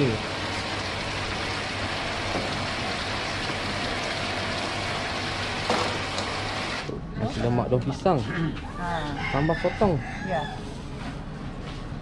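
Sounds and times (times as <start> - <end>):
water splashing in tanks: 0.0 - 7.0.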